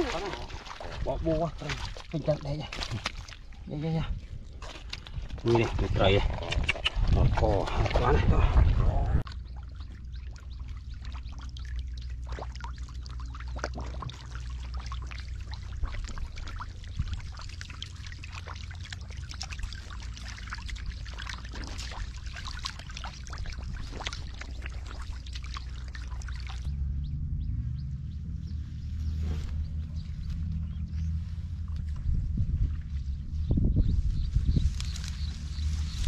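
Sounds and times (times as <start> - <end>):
fish splashing in water: 0.0 - 3.6, 6.2 - 26.7
low rumble: 4.1 - 36.0
water trickling: 9.2 - 26.7.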